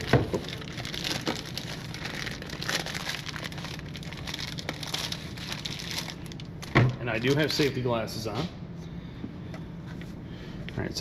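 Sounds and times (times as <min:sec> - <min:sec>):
plastic bag crinkling: 0:00.0 - 0:07.9.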